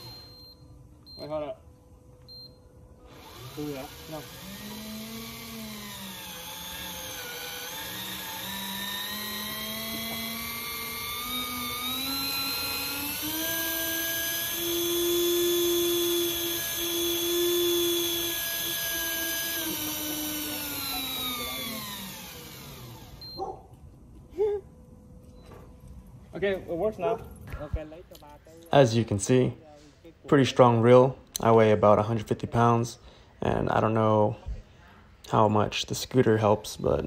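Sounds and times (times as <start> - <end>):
electric fishing reel motor whining: 3.0 - 23.4.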